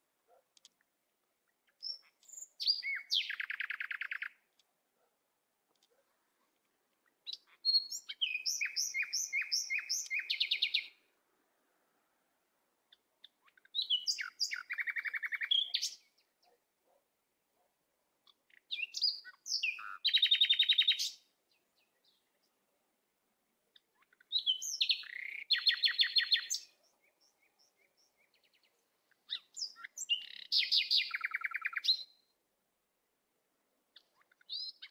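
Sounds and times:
songbird trilling and chirping: 1.4 - 4.4, 7.0 - 11.0, 12.9 - 16.6, 18.2 - 22.5, 23.7 - 32.3, 33.9 - 34.9.

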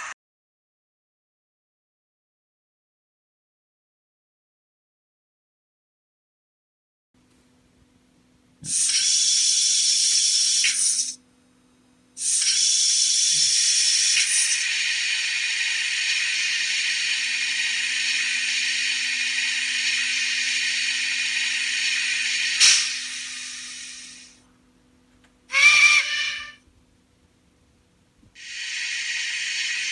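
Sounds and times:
steam hissing: 8.6 - 11.2, 12.2 - 24.4, 28.4 - 29.9
sharp click: 12.2 - 12.8, 22.6 - 23.2.

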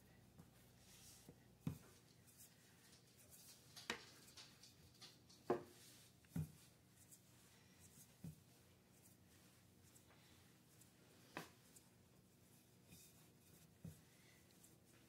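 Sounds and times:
rolling pin rubbing dough: 5.6 - 15.0.

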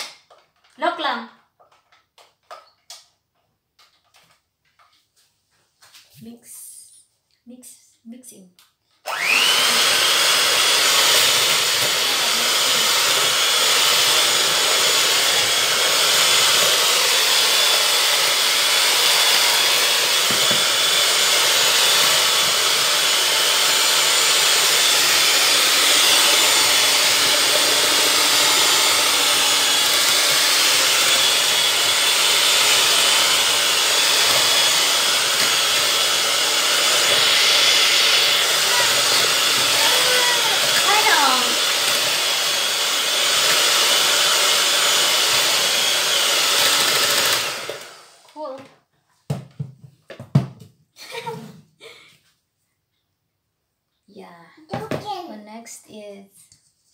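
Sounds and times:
electric hand mixer whirring: 9.0 - 48.6.

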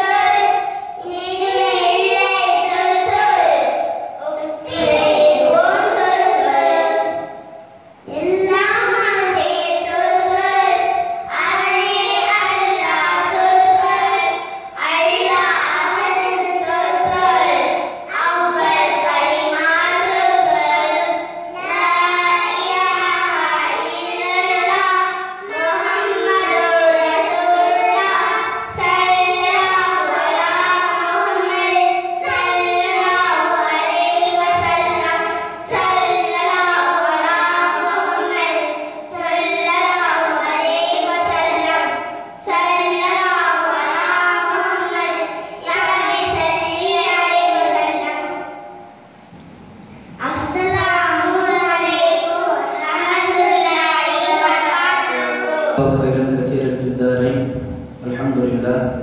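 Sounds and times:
children singing into microphones: 0.0 - 58.8.

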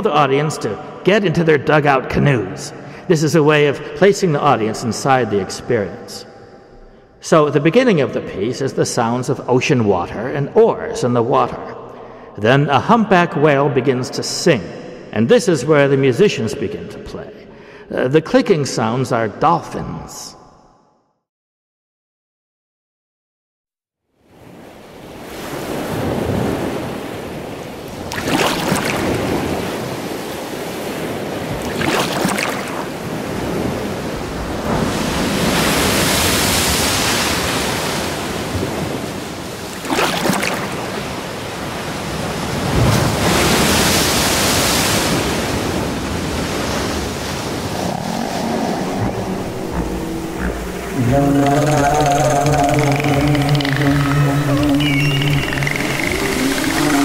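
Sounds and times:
ocean swells washing: 24.4 - 57.0
oars splashing in water: 27.9 - 30.6, 31.5 - 33.1, 39.6 - 41.2, 46.5 - 57.0
low pitched sound: 47.7 - 57.0.

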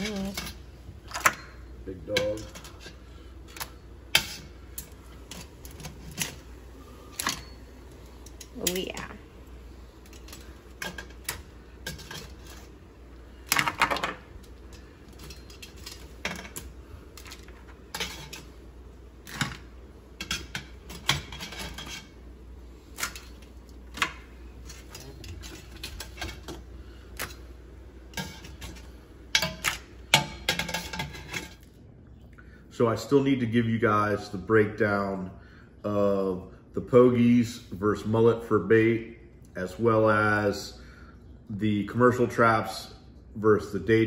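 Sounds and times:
metal tongs scraping a pot: 2.1 - 3.0, 4.1 - 6.5, 10.0 - 12.7, 14.4 - 18.6, 20.2 - 22.2, 23.0 - 27.4, 28.1 - 31.6.

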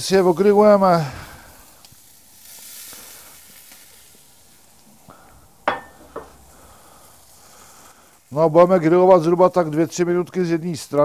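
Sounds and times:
fish sizzling on hot grill: 0.0 - 11.0
sharp metallic clink: 5.7 - 6.3.

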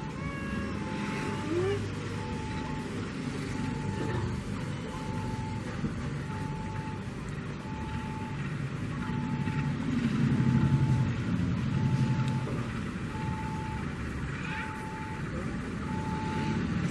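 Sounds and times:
diesel locomotive engine rumble: 0.0 - 16.9
mid-pitched beep: 2.2 - 2.9.

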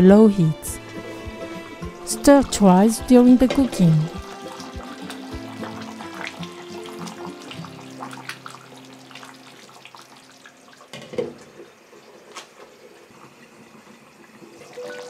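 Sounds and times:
curry bubbling and popping: 4.1 - 14.8.

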